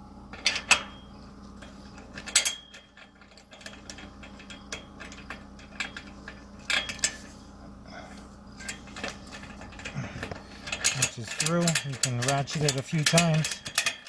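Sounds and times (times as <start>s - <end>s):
metal buckle clicks and clatter: 1.6s - 7.3s, 8.6s - 14.0s.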